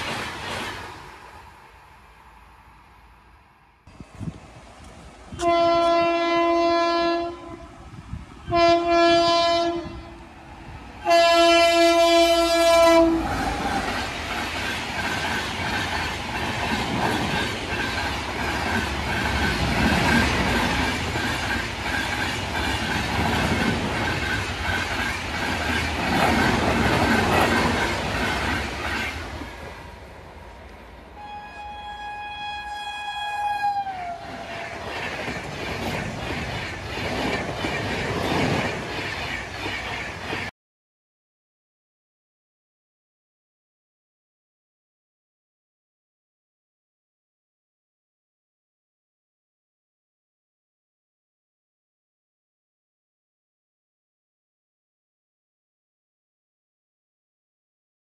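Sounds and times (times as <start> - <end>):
train passing with wheel clatter: 0.0 - 40.5
higher-pitched horn: 5.4 - 7.7, 8.5 - 10.1, 11.0 - 13.3, 31.2 - 34.3
train horn blasts: 5.4 - 7.7, 8.4 - 10.2, 11.0 - 13.3, 31.2 - 34.3.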